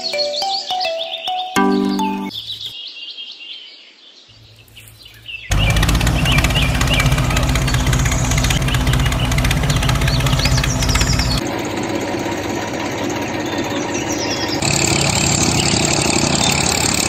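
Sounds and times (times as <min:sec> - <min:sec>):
birds chirping: 0:00.0 - 0:11.5, 0:13.0 - 0:17.0
tractor engine idling: 0:04.4 - 0:17.0.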